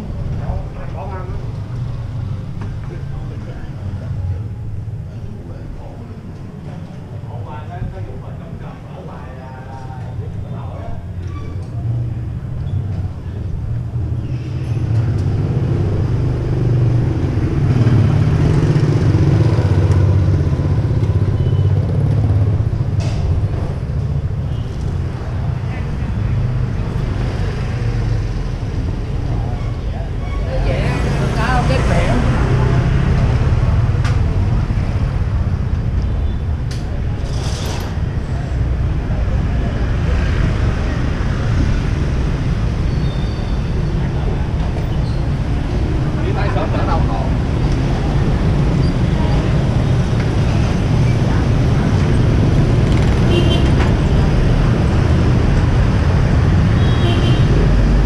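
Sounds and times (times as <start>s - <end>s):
motorbike passing: 11.8s - 58.0s.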